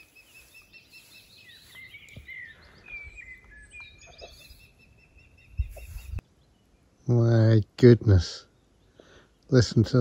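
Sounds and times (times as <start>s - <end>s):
bird whistled chirps: 0.0s - 6.2s.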